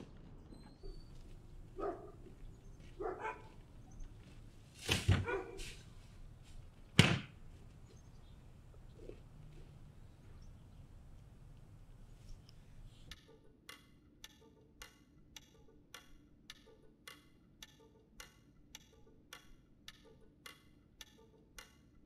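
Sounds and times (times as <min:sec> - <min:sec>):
garbage bag thudding into bin: 0:04.8 - 0:05.3
plastic bin lid slamming: 0:07.0 - 0:07.3.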